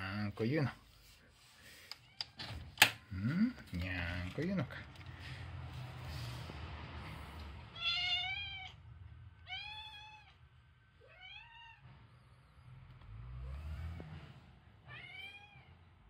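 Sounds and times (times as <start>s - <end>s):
cat meowing: 7.7s - 10.4s, 11.0s - 11.9s, 14.8s - 15.8s.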